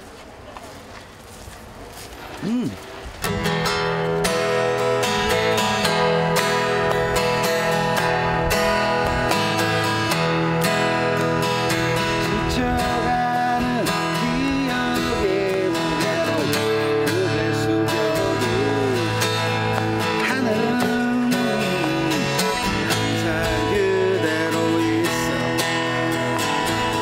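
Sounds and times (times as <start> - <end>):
acoustic guitar strumming: 3.2 - 27.0
man singing: 11.8 - 27.0.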